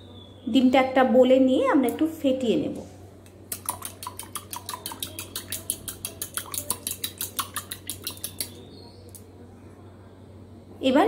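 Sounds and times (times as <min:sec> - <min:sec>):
fork whisking in glass bowl: 0:03.6 - 0:08.6.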